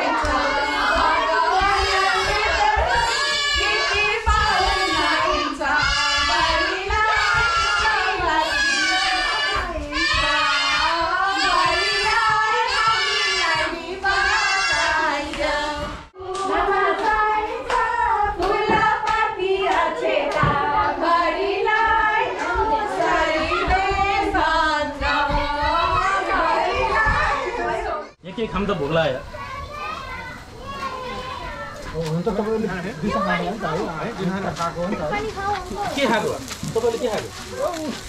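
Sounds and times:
children singing together: 0.0s - 28.2s.

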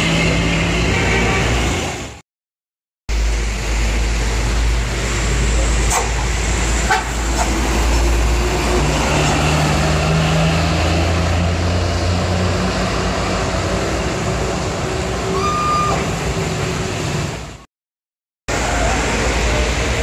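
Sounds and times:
diesel engine humming: 3.1s - 17.6s
tyres hissing on wet road: 3.1s - 17.6s, 18.5s - 20.0s.

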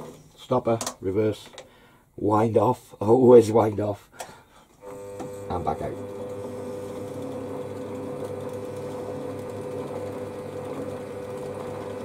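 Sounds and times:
metal lathe humming: 4.8s - 12.0s.

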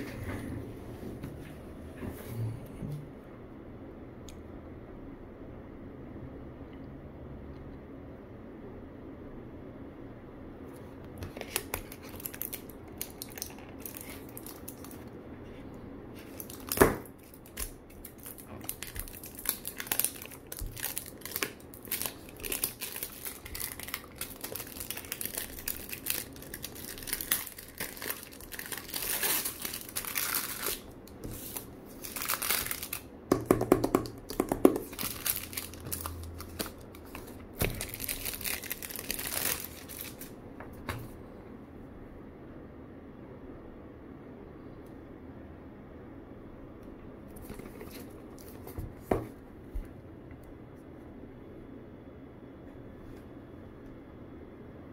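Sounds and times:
crumpling handling: 11.2s - 15.2s, 16.1s - 33.4s, 34.1s - 40.4s, 47.3s - 49.1s
plastic wrap tearing and crinkling: 11.2s - 15.2s, 16.2s - 33.1s, 34.1s - 40.3s.

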